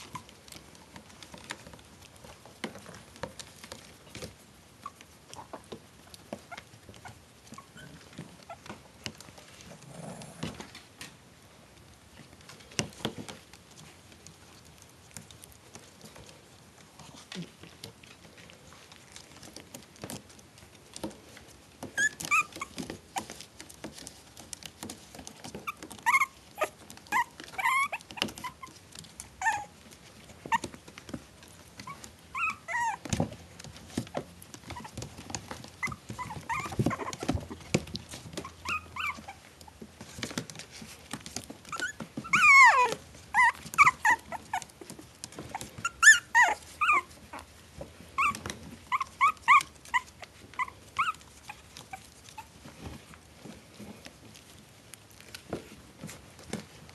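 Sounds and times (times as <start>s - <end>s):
puppies whimpering and yipping: 0.0s - 2.3s, 3.3s - 9.4s, 21.0s - 54.6s
rustling and scratching: 0.0s - 56.9s.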